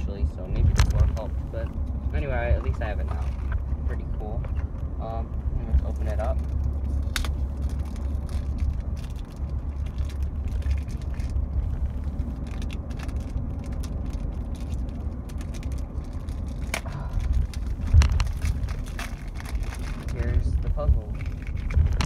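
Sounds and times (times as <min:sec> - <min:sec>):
car interior rumble: 0:00.0 - 0:22.0
puzzle cube clicks and rustles: 0:05.8 - 0:22.0.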